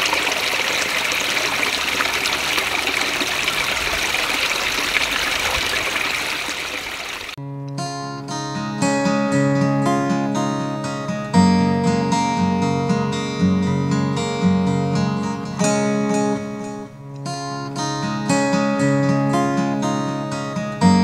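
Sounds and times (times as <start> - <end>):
acoustic guitar music: 7.4 - 21.0.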